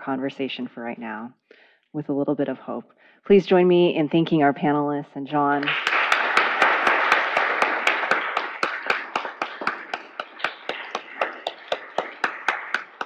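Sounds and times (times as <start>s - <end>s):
audience applauding: 5.6s - 13.0s
sharp close claps: 5.6s - 13.0s.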